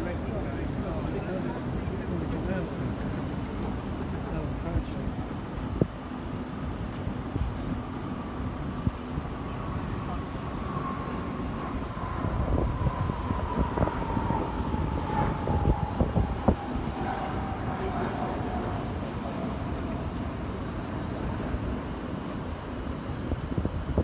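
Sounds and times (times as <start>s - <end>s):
jet engines whining overhead: 0.0s - 24.0s
low rumble: 8.5s - 21.9s.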